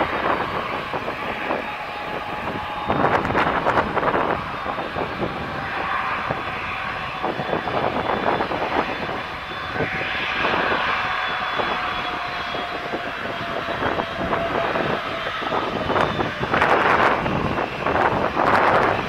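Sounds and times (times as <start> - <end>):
jet engines whining: 0.0 - 19.0.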